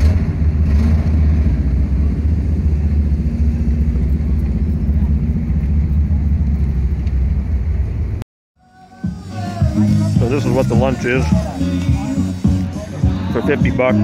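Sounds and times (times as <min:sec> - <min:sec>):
car engine rumbling: 0:00.0 - 0:08.2.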